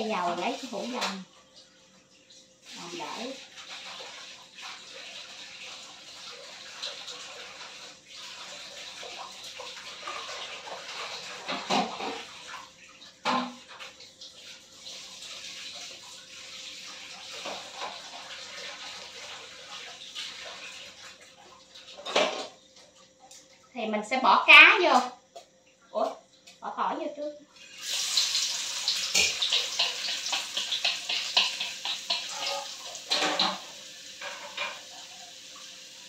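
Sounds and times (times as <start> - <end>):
gas stove burner hissing: 27.6 - 36.0.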